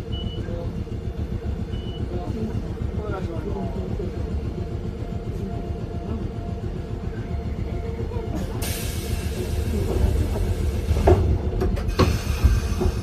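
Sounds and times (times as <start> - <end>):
tram rumble and hum: 0.0 - 13.0
hiss: 11.9 - 13.0.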